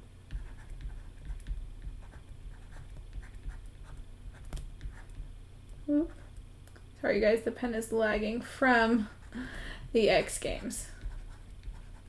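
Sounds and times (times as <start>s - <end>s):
low steady hum: 0.0s - 12.0s
stylus tapping and scratching on screen: 0.2s - 6.5s, 9.2s - 12.0s.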